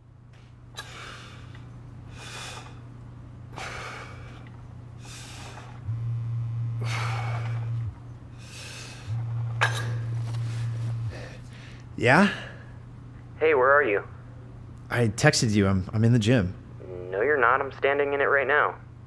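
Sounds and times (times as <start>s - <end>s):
man breathing hard: 0.8s - 2.8s, 3.5s - 5.9s, 6.8s - 9.2s, 10.3s - 12.8s
mobile phone vibrating: 5.0s - 11.8s.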